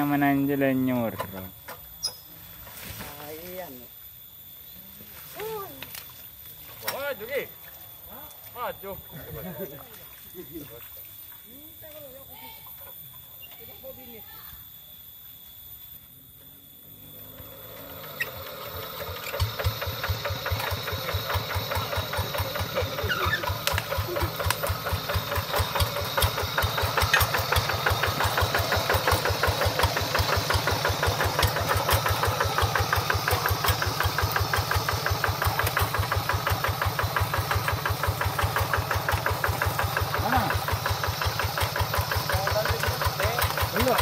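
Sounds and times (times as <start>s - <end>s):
diesel engine starting and chugging: 16.9s - 44.0s.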